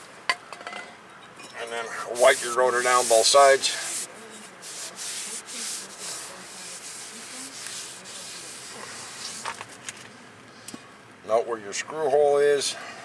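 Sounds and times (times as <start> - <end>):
paper towel rubbing metal: 2.0 - 9.8.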